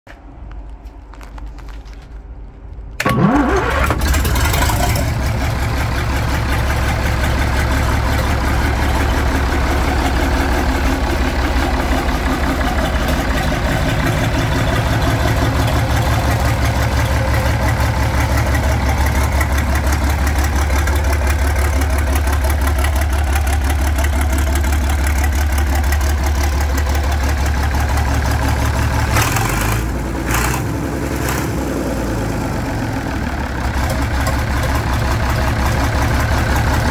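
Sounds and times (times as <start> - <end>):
diesel engine running: 0.7 - 36.9
electric starter cranking: 3.0 - 5.2.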